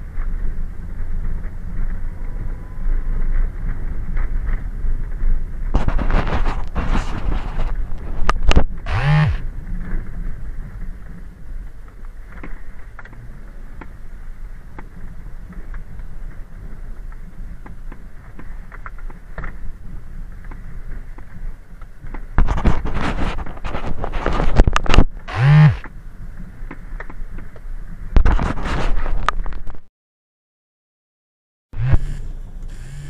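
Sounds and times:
engine and tyres rumbling: 0.0s - 29.9s, 31.8s - 33.0s
wind noise: 0.0s - 29.9s
brief pitched sound: 8.9s - 9.4s, 25.3s - 25.8s, 31.8s - 33.0s.

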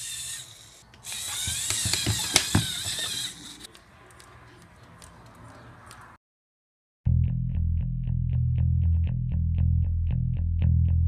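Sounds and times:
electric motors whirring through gears: 0.0s - 3.8s
sharp clicks: 0.8s - 6.1s.

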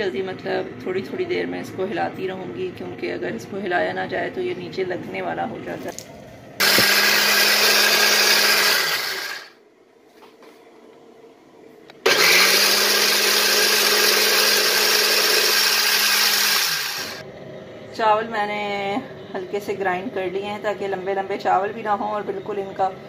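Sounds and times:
electric food grinder motor whirring: 6.6s - 9.6s, 12.0s - 17.2s.

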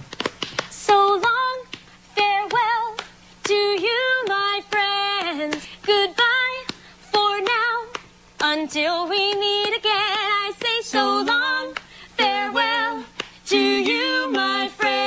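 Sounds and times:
woman singing with vibrato: 0.8s - 15.0s.

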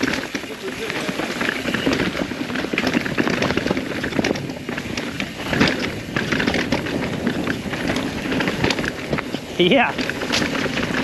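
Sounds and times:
bike rattling and knocking: 0.0s - 11.0s
bike tyres crunching over dirt: 0.0s - 11.0s.

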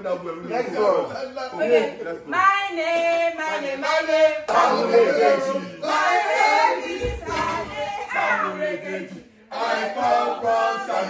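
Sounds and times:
group singing nursery rhyme: 3.0s - 11.0s.

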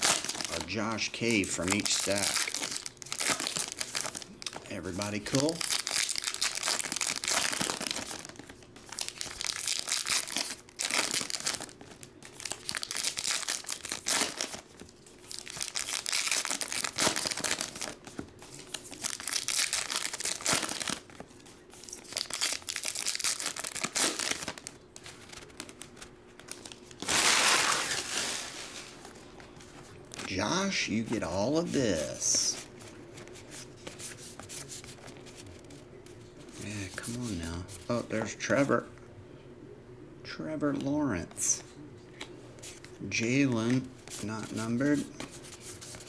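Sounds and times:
foil wrappers crinkling: 0.0s - 35.8s.

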